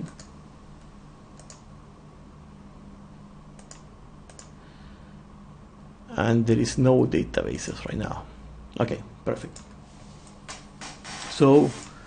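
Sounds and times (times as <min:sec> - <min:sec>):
computer mouse clicks: 0:00.0 - 0:00.3, 0:01.4 - 0:01.6, 0:03.6 - 0:04.6
faint steady hum: 0:00.0 - 0:12.0.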